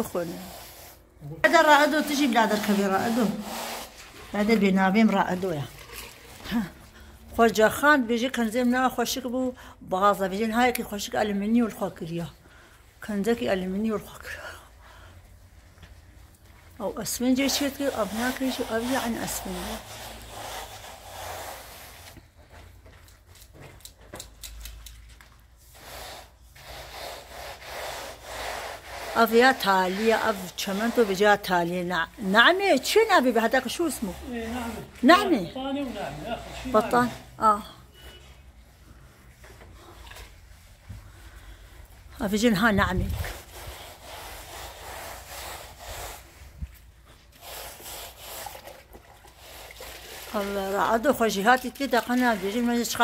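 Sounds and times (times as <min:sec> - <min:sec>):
hand float rasping on cement wall: 0:00.0 - 0:06.7, 0:17.3 - 0:22.2, 0:25.6 - 0:37.4, 0:42.9 - 0:53.0.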